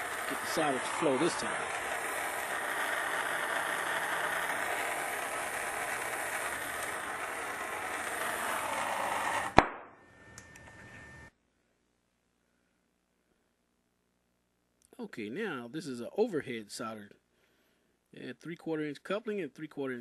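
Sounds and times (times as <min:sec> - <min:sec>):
soldering torch flame hissing: 0:00.0 - 0:09.7.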